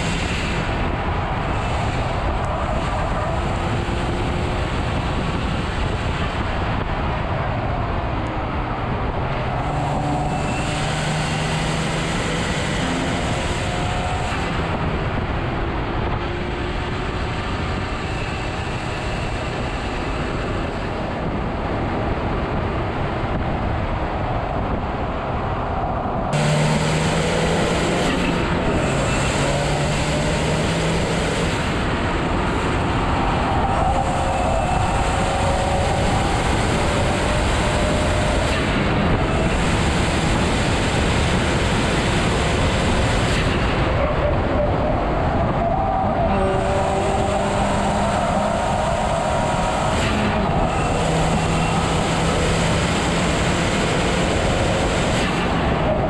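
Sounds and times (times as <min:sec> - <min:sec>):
wind and tyre noise: 0:00.0 - 0:56.0
car engine revving through gears: 0:08.4 - 0:20.9, 0:26.3 - 0:43.9, 0:45.5 - 0:55.9.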